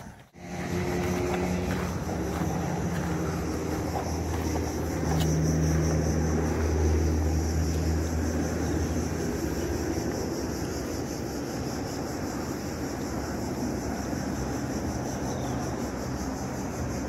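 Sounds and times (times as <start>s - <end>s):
distant engine drone: 0.0s - 17.0s.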